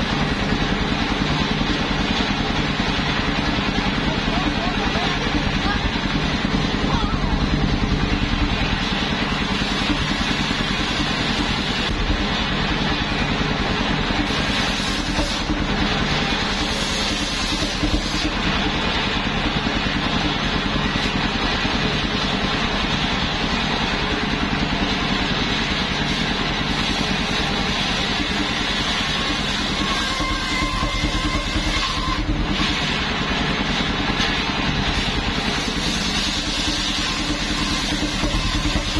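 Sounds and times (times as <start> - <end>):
sawmill engine running: 0.0 - 38.9
circular saw blade cutting hiss: 14.3 - 15.5, 34.9 - 38.9.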